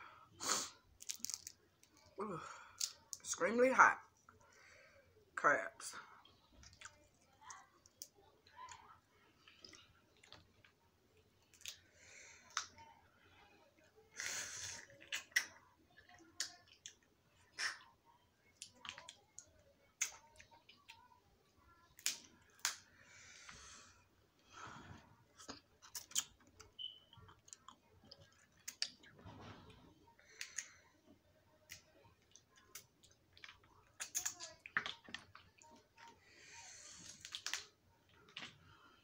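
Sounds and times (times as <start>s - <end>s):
crab shells cracking: 1.0s - 2.1s, 37.2s - 37.7s
chewing: 6.2s - 12.8s, 14.8s - 18.0s, 24.9s - 30.9s, 31.5s - 36.2s.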